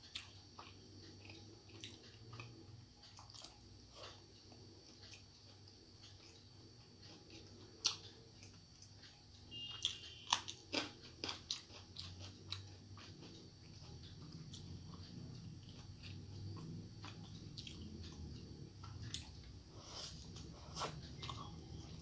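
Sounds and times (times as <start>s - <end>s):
crunching and chewing: 0.0s - 22.0s.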